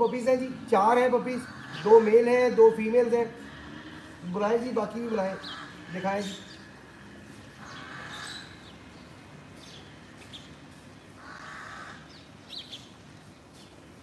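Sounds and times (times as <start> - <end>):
small birds chirping: 0.0 - 14.0
crow cawing: 1.2 - 2.6, 3.2 - 8.7, 11.2 - 12.2.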